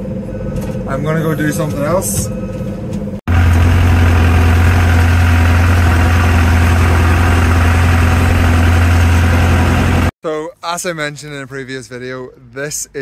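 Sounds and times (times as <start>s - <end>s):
tractor engine idling: 3.3s - 10.1s.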